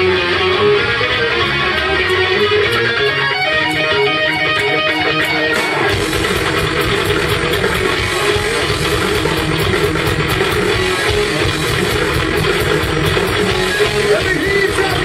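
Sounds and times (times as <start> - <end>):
electric guitars melodic line: 0.0 - 15.0
heavy metal band playing: 0.0 - 15.0.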